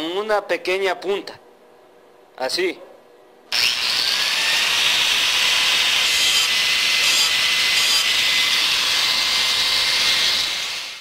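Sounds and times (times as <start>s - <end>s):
angle grinder grinding metal: 3.5s - 11.0s.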